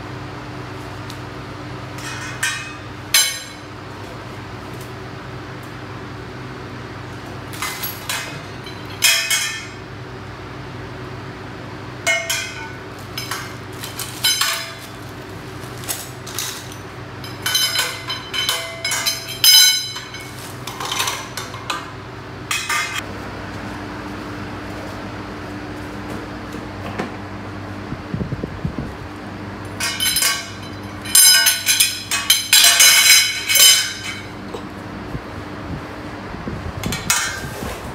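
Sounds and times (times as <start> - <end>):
steady low hum: 0.0 - 37.9
metal tubes clinking: 2.0 - 3.7, 7.6 - 9.8, 12.0 - 23.0, 29.8 - 34.5.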